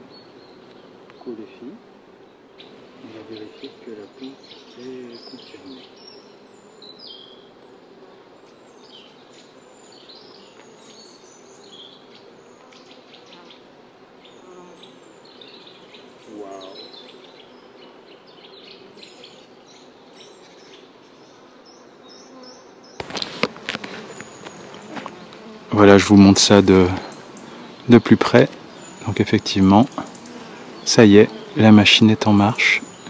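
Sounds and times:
bees buzzing: 0.0 - 33.0
clicks and handling noise: 23.0 - 25.4.

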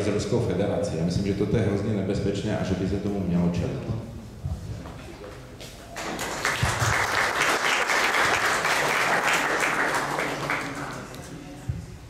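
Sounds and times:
audience applauding: 5.9 - 11.3.

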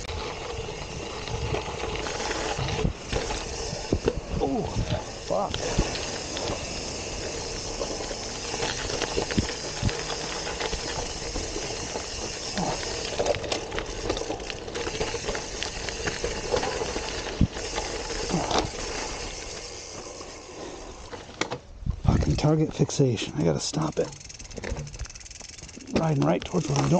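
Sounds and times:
bike rattling and knocking: 0.0 - 26.9
bike tyres on dirt trail: 0.0 - 26.9.

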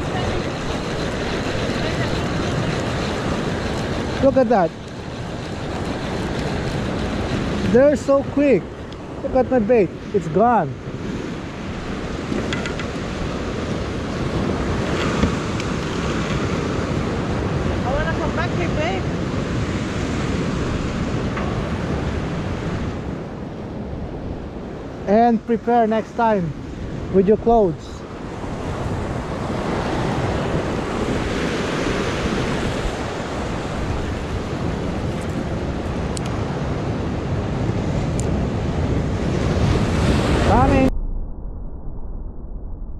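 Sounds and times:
surf breaking over rocks: 0.0 - 22.9, 27.6 - 41.0
wind buffeting microphone: 0.0 - 42.9.

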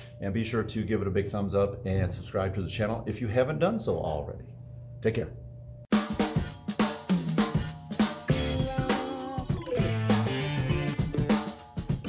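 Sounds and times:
music with drum-kit beat: 5.9 - 12.0.

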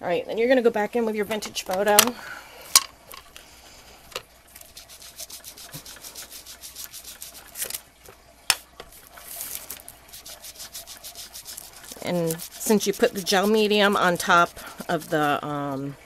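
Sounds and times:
ink rubbing on paper: 4.7 - 7.7, 9.2 - 15.4.

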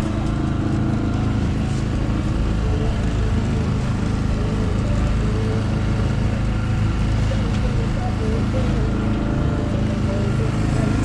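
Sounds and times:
outboard engine running: 0.0 - 11.0
water rushing along hull: 0.0 - 11.0.

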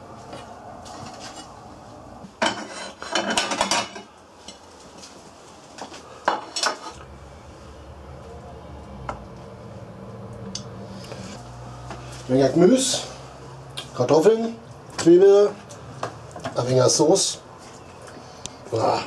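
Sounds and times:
cutlery and cookware clattering: 2.4 - 4.1, 6.3 - 7.0.

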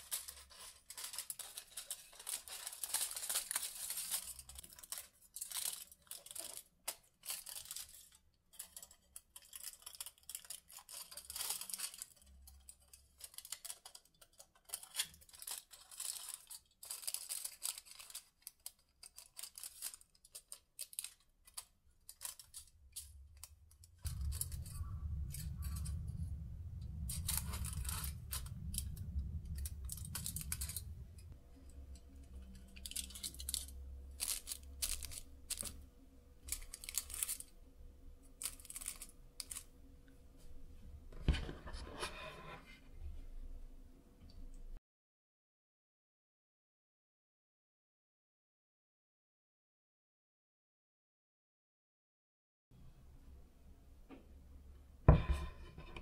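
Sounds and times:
scissors snipping foil: 0.0 - 24.3, 32.5 - 35.8, 36.4 - 37.5, 38.4 - 39.7
aluminium foil crinkling: 0.0 - 37.6, 38.2 - 39.8
steady low hum: 22.6 - 36.8.

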